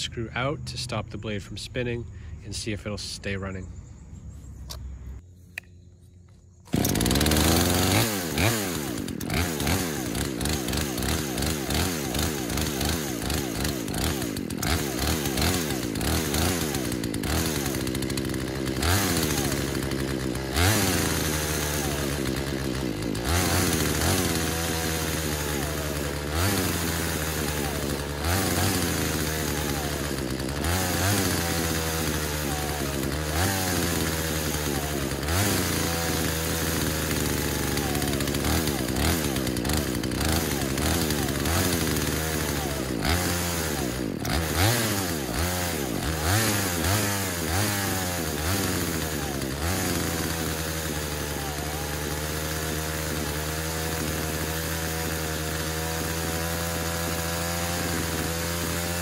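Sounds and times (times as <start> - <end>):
chainsaw engine surging: 6.6 - 59.0.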